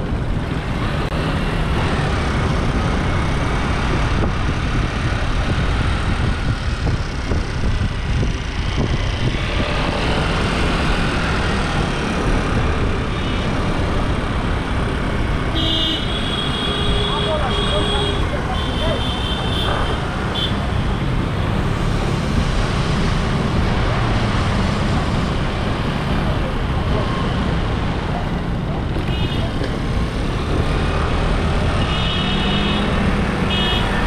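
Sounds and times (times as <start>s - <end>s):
wind rushing over microphone: 0.0s - 15.5s.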